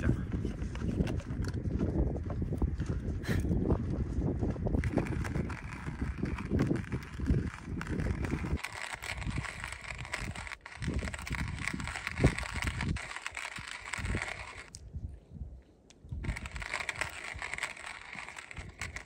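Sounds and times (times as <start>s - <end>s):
wind gusting on microphone: 0.0s - 19.0s
hand-crank coffee grinder grinding: 0.6s - 1.6s, 4.8s - 14.8s, 16.2s - 19.0s.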